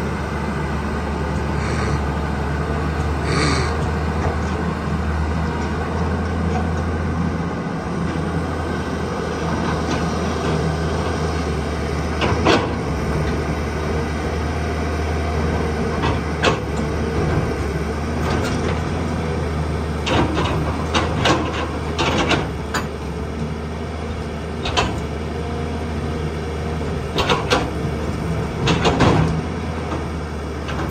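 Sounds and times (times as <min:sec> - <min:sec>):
diesel excavator engine running: 0:00.0 - 0:30.9.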